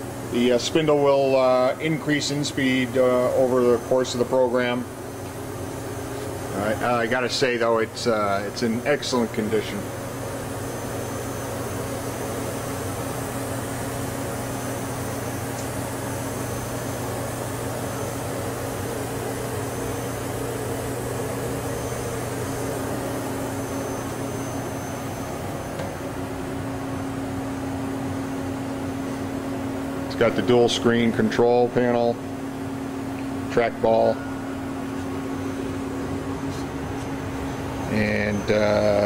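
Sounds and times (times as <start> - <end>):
low constant whine: 0.0 - 39.0
machining center hum: 0.0 - 39.0.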